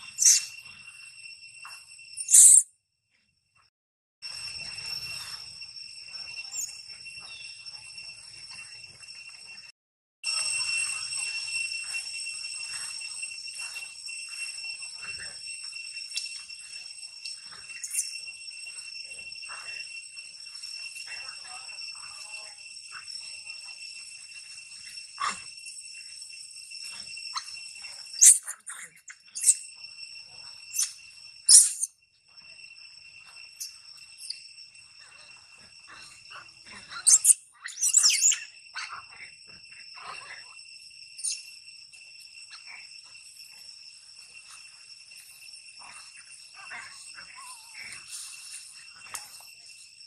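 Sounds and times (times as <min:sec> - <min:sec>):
monkeys shrieking: 0:00.0 - 0:00.6, 0:02.3 - 0:02.6, 0:27.3 - 0:29.6, 0:30.7 - 0:31.9, 0:35.9 - 0:39.3, 0:45.8 - 0:49.2
insects droning: 0:00.0 - 0:50.0.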